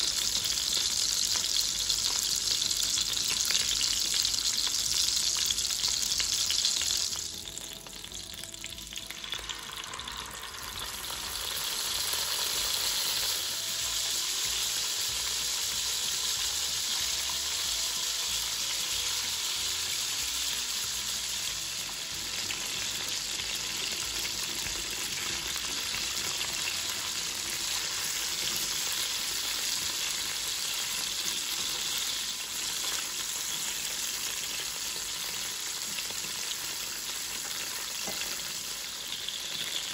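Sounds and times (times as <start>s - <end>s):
meat sizzling in hot oil: 0.0s - 39.9s.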